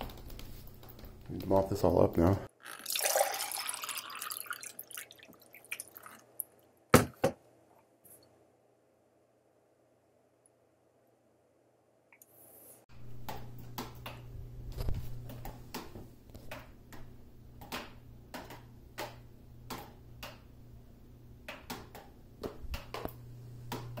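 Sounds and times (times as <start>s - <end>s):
water dripping into buckets: 2.6s - 6.6s.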